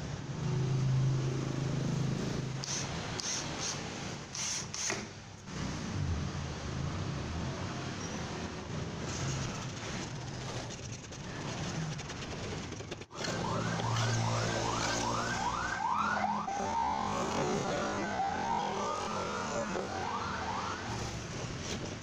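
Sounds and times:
siren wailing: 13.2 - 21.2.

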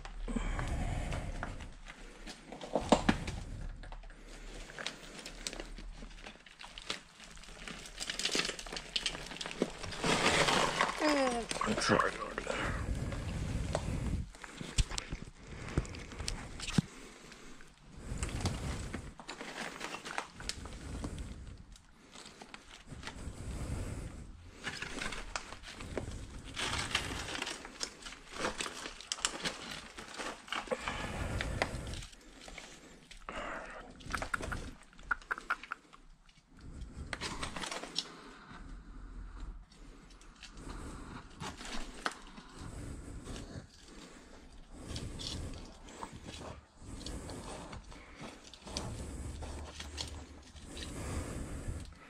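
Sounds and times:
rubble crunching underfoot: 0.0 - 33.2.

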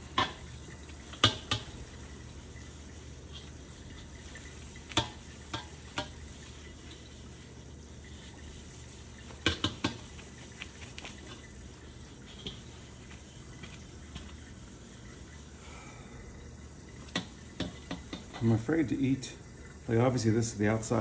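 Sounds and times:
wok clanking against metal sink: 0.0 - 1.8, 4.4 - 6.2, 9.3 - 10.2, 17.1 - 18.5
paper towel wiping wok: 0.0 - 15.5.

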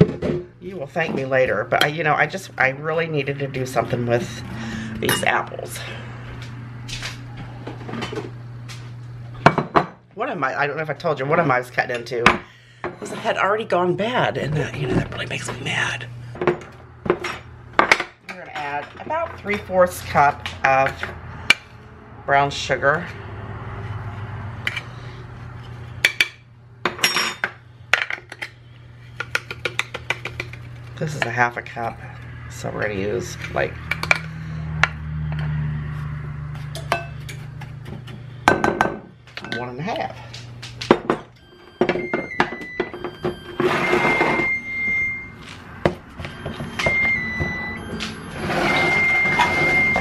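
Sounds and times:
kitchen items knocking and clicking: 0.0 - 2.0, 16.4 - 21.6, 29.2 - 31.9, 36.7 - 44.4
low steady hum: 0.0 - 50.0
plastic lid rubbing and squealing: 48.3 - 50.0.

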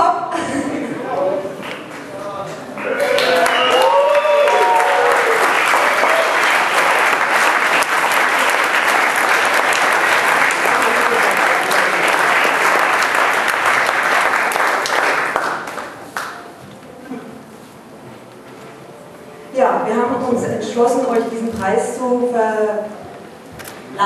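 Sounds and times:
audience applauding: 2.8 - 16.4.

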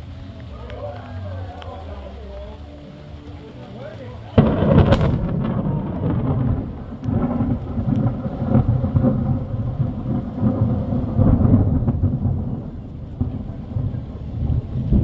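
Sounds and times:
rain falling: 0.0 - 15.0
rolling thunder: 4.4 - 15.0.

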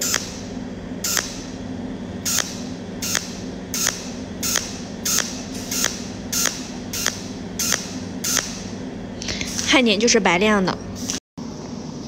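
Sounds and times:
welding arc zaps: 0.0 - 8.8
steady low hum: 0.0 - 12.0.

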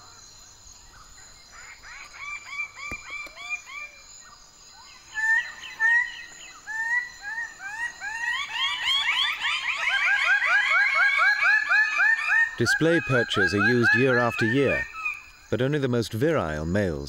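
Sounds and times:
birds calling rising calls: 0.0 - 17.0.

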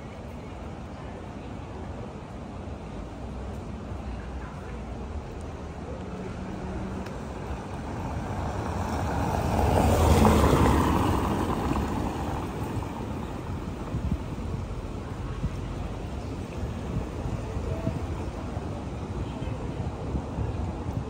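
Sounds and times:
motor vehicle driving past: 8.0 - 13.3.

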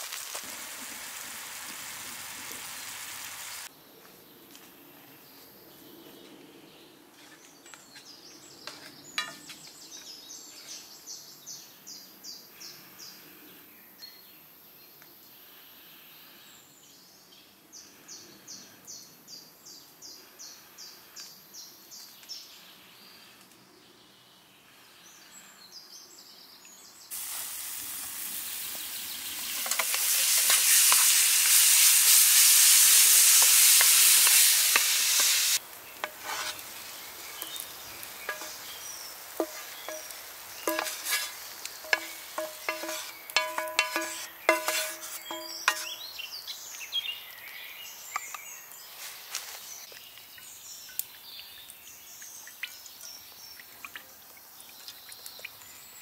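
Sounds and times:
loud frying sizzle: 0.0 - 3.7, 27.1 - 46.0
wooden spatula scraping a pan: 29.4 - 31.1, 33.3 - 36.8, 38.2 - 38.8, 39.4 - 46.0.

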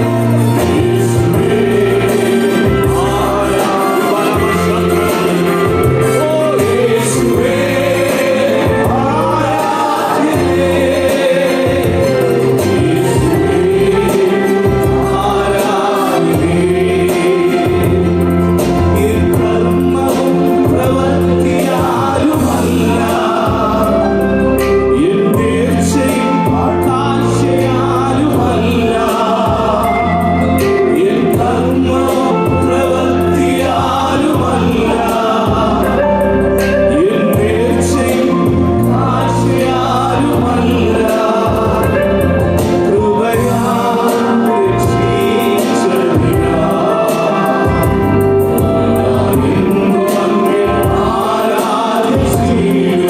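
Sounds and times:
low bass notes: 0.0 - 51.4
amplified accompaniment: 0.0 - 53.0
men singing together: 0.0 - 53.0.

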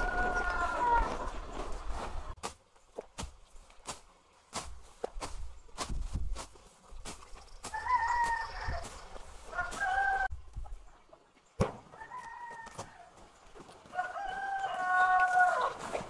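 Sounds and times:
roosters crowing: 0.0 - 1.5, 7.6 - 10.3, 11.9 - 13.2, 13.8 - 16.0.

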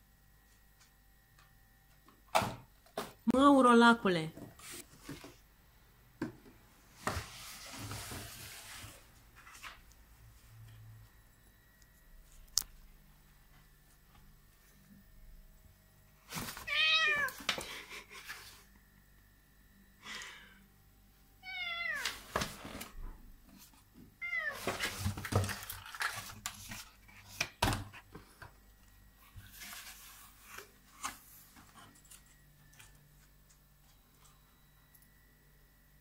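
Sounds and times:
cardboard box scraping on floor: 7.0 - 9.7
cat meowing: 16.6 - 17.4, 21.4 - 22.2.

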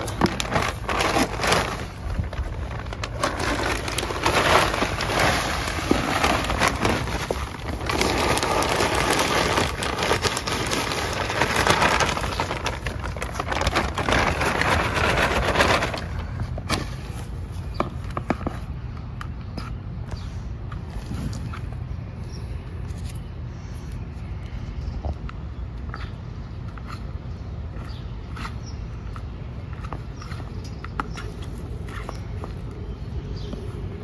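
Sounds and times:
potting soil crackling and rustling: 0.0 - 18.8, 25.9 - 34.0.

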